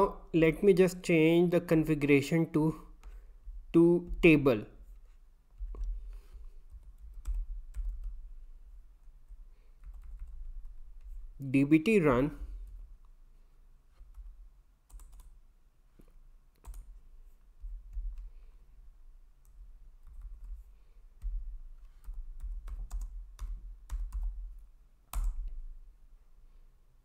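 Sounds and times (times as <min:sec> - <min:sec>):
typing on a keyboard: 0:06.7 - 0:08.2, 0:09.8 - 0:11.1, 0:14.0 - 0:15.4, 0:16.6 - 0:17.0, 0:19.4 - 0:20.6, 0:22.0 - 0:25.6.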